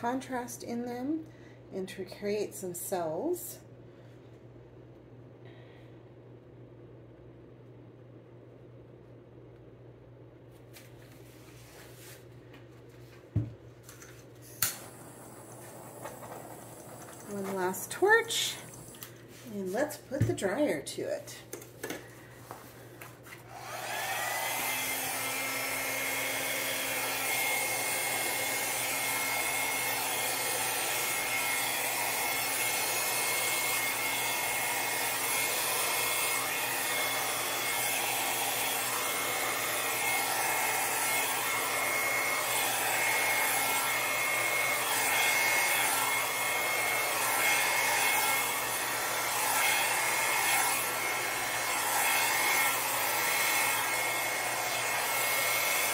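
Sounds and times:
hair dryer motor whine: 14.5s - 19.5s, 23.4s - 55.9s.

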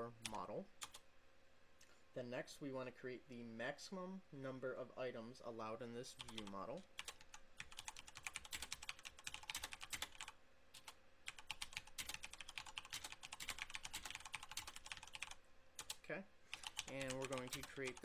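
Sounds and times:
computer keyboard typing: 0.2s - 1.0s, 6.2s - 18.0s.

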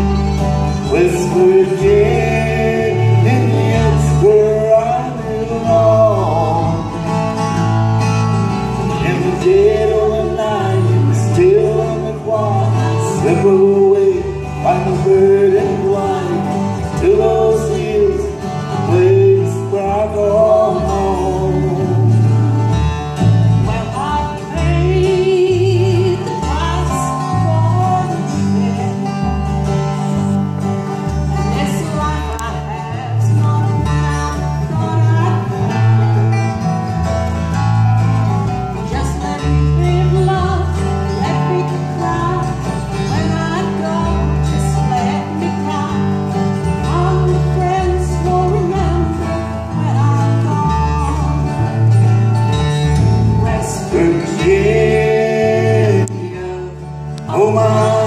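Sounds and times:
fiddle melody: 0.0s - 58.0s
strummed acoustic guitars: 0.0s - 58.0s
walking upright bass line: 0.0s - 58.0s.

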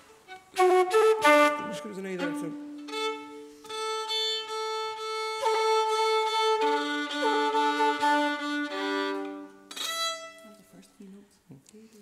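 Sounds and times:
fiddle tuning double stops: 0.0s - 10.4s.

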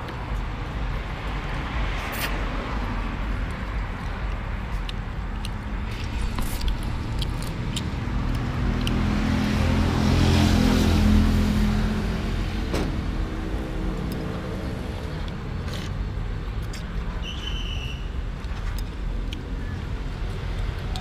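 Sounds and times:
vehicle passing: 0.6s - 16.8s.

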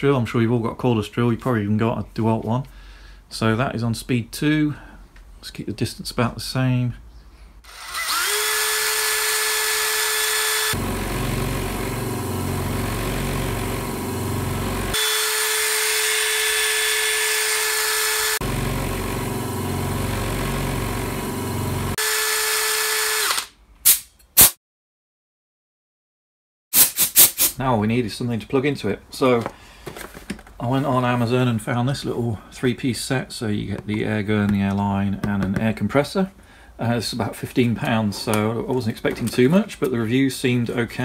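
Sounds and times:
cordless drill whining: 7.6s - 23.5s
low rumbling machine: 10.8s - 15.0s, 18.4s - 22.0s.

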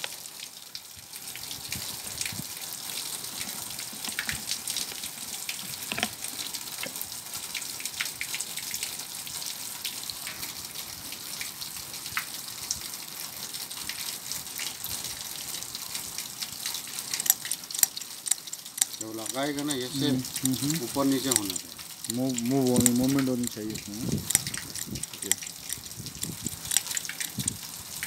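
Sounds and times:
running water hiss: 0.0s - 28.0s
metal parts clicking: 5.8s - 6.2s, 17.2s - 22.2s, 24.2s - 27.6s.

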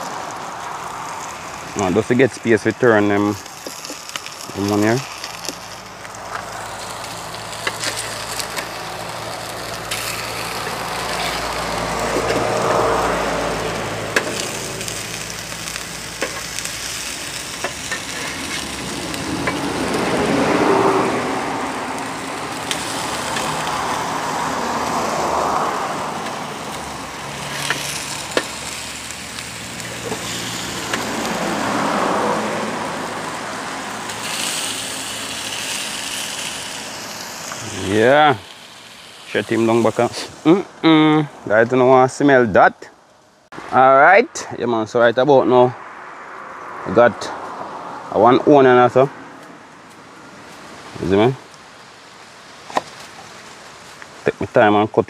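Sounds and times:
fish patties sizzling in a pan: 3.3s - 41.1s.

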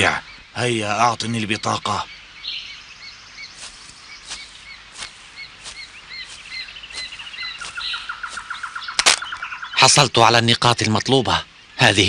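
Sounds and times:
bird chirping: 0.0s - 12.0s
bird trill: 0.0s - 12.0s.

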